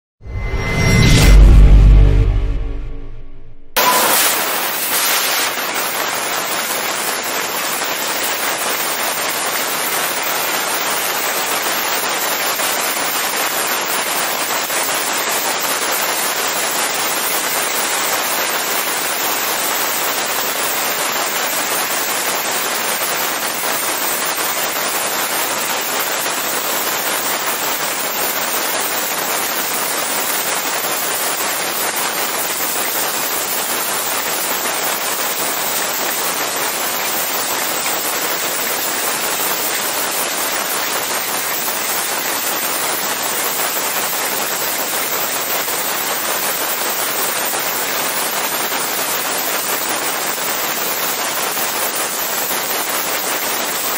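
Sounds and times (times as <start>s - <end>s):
laser cutter hissing: 3.8s - 6.1s.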